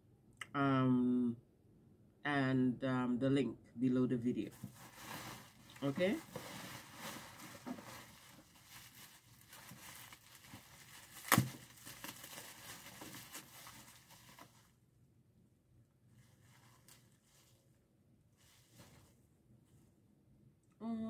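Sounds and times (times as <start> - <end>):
plastic wrap rustling: 4.5 - 14.8.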